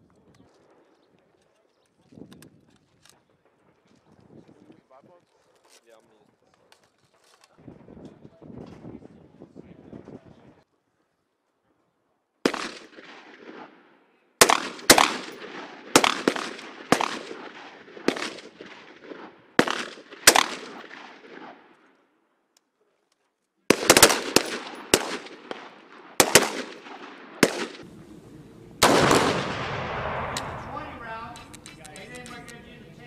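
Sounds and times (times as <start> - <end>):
rifle shots echoing: 12.4 - 22.0, 23.7 - 28.0, 28.8 - 32.5
loud blast with rushing tail: 28.8 - 31.2.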